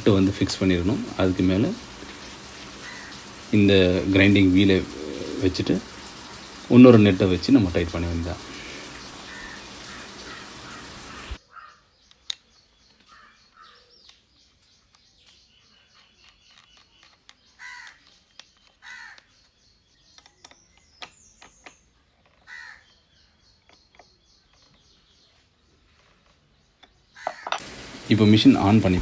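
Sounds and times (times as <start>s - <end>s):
steady hiss: 0.0s - 11.4s, 27.4s - 29.0s
bird calls: 0.9s - 28.1s.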